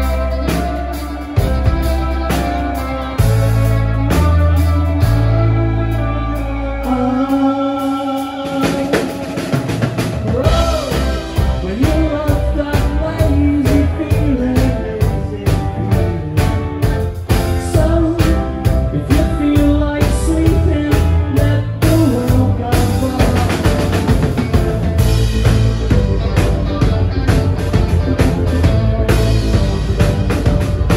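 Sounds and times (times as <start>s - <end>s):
bass guitar: 0.0s - 30.9s
drum kit: 0.0s - 30.9s
electric guitar: 0.0s - 30.9s
man singing lead vocal: 4.5s - 26.4s.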